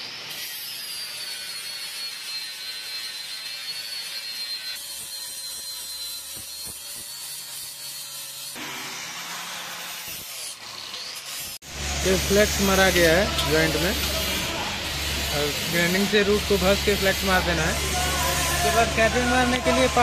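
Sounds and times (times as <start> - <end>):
angle grinder grinding metal: 0.0 - 20.0.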